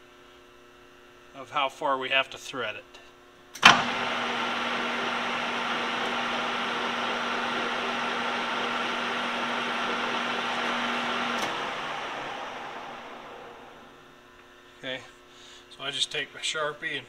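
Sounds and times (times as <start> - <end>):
metal lathe whining: 3.6 - 14.1
lathe spinning down: 3.6 - 14.3.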